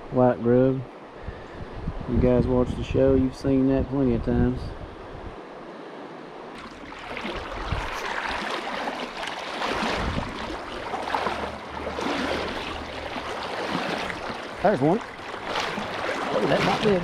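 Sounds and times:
river water flowing and splashing: 5.0s - 17.0s.

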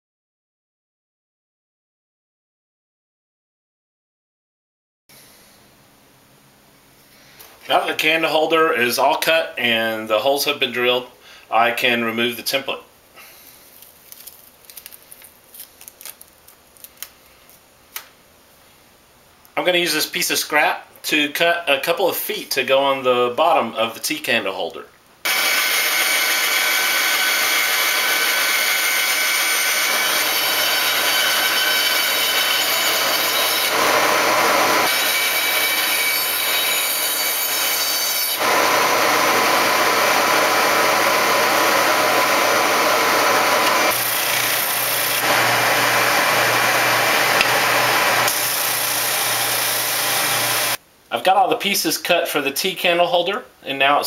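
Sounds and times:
bandsaw cutting wood: 25.3s - 50.8s
spindle sander sanding: 25.3s - 50.8s.

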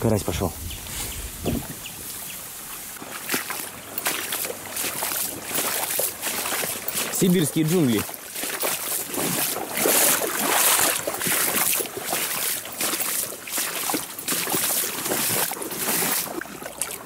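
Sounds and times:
reeds scraping along a boat: 0.3s - 11.6s.

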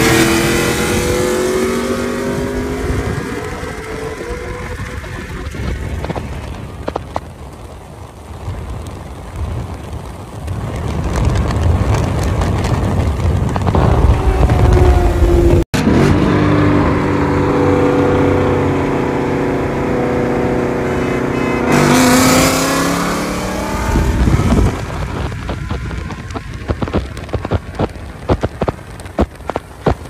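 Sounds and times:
racing engines at full throttle: 0.0s - 7.3s, 13.6s - 30.0s
wind rushing on microphone: 0.0s - 30.0s.

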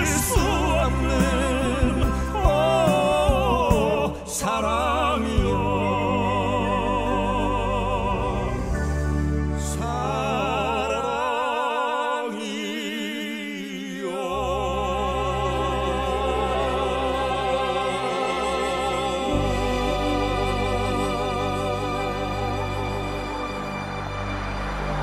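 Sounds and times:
slow melody with heavy vibrato: 14.6s - 25.0s.

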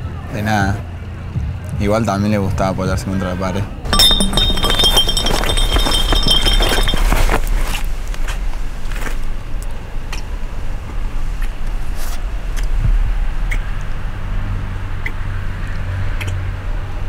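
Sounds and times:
glass bottle rolling and clinking: 3.9s - 7.7s.

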